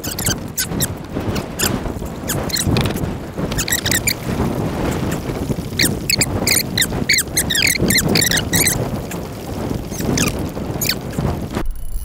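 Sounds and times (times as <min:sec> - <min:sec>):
short high squeaks: 0:00.0 - 0:04.2, 0:09.9 - 0:12.0
choppy water against kayak: 0:00.0 - 0:11.7
wind buffeting microphone: 0:00.0 - 0:12.0.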